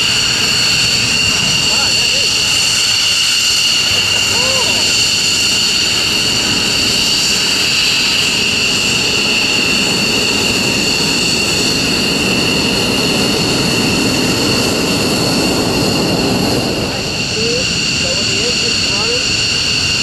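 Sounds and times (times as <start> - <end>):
jet engine rush: 0.0 - 20.0
jet engines high-pitched whine: 0.0 - 20.0.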